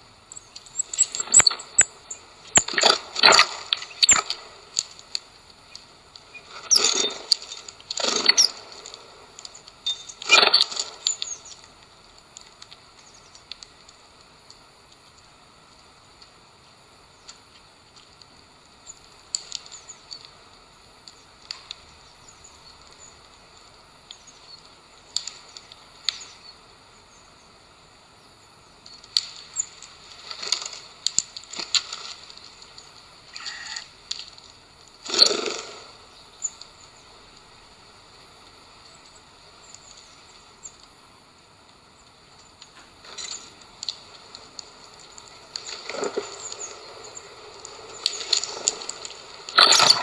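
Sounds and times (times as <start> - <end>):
beaks tapping on seeds: 0.4 - 4.4.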